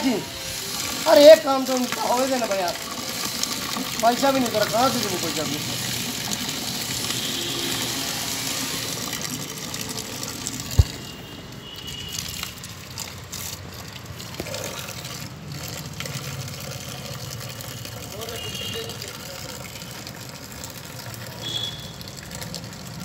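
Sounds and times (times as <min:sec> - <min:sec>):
water pouring into a steel pipe: 0:00.0 - 0:23.0
sharp thump: 0:10.8 - 0:11.0.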